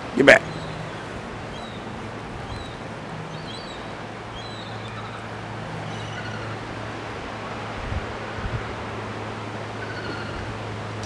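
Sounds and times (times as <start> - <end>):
low even hum: 0.0 - 11.0
faint high chirps: 0.4 - 6.9.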